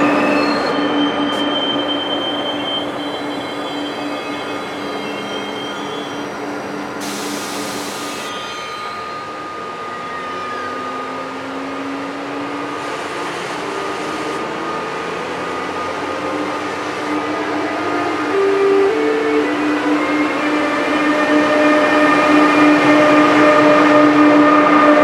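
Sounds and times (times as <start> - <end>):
electric locomotive humming: 0.0 - 25.0
short hiss: 7.0 - 8.3.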